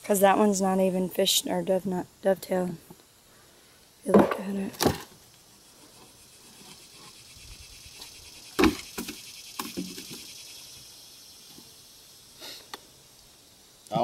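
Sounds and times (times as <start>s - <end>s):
faint steady hiss: 0.0s - 14.0s
knocks on wooden boxes: 4.1s - 5.0s, 8.6s - 10.2s.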